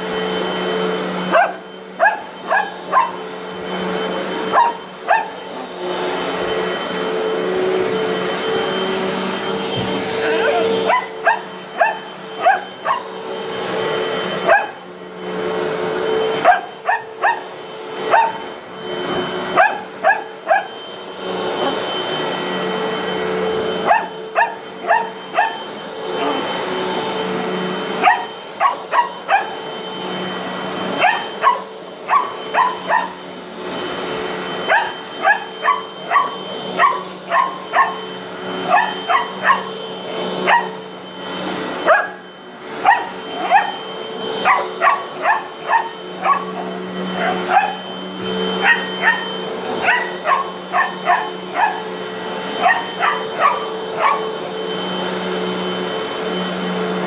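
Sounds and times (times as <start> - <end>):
vacuum cleaner motor hum: 0.0 - 57.0
dog barking: 1.3 - 3.2, 4.5 - 5.4, 10.8 - 13.1, 14.4 - 14.8, 16.4 - 17.4, 18.1 - 18.4, 19.6 - 20.7, 23.8 - 25.6, 28.0 - 29.6, 31.0 - 33.2, 34.7 - 38.0, 38.7 - 39.7, 40.4 - 40.8, 41.8 - 42.2, 42.8 - 43.8, 44.4 - 47.9, 48.6 - 51.9, 52.6 - 54.3.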